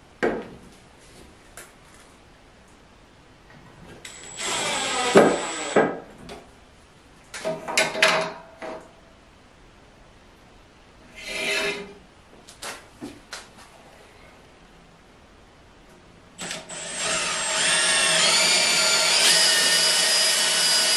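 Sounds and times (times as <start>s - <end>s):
drill driver whining: 4.1s - 5.9s, 16.4s - 20.9s
metal leg scraping on wood: 11.1s - 12.0s.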